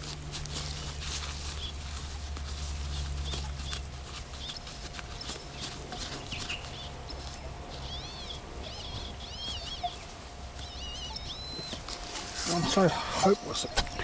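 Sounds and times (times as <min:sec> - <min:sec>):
faint steady hum: 0:00.0 - 0:14.0
light ticks and scuffs: 0:00.0 - 0:14.0
bird whistling calls: 0:04.4 - 0:14.0.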